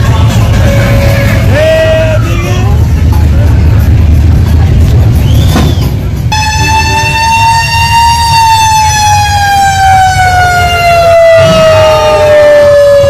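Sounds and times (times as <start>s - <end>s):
car engines rumbling: 0.0s - 13.0s
siren wailing: 6.3s - 13.0s.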